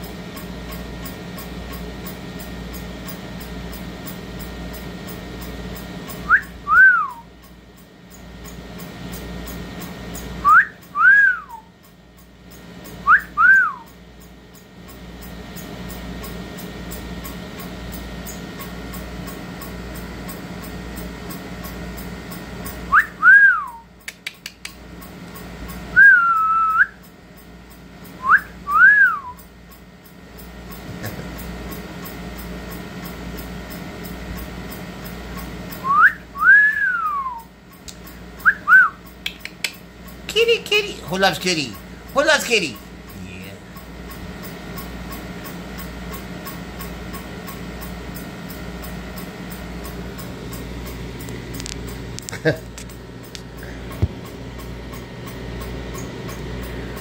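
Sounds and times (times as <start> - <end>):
steady background hum: 0.0 - 57.0
two-note whistle: 6.2 - 7.3, 10.4 - 11.7, 13.0 - 14.0, 22.9 - 23.9, 25.9 - 27.1, 28.2 - 29.5, 35.8 - 37.6, 38.4 - 39.0
sharp clicks: 24.0 - 25.8, 37.7 - 40.2.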